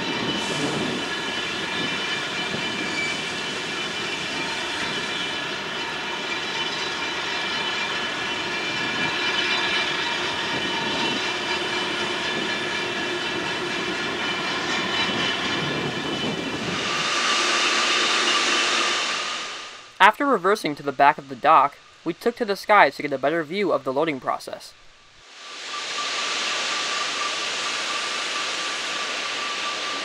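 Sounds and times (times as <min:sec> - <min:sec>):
steady whining tones: 0:00.0 - 0:22.5, 0:24.7 - 0:30.0
bright even hiss: 0:25.1 - 0:30.0.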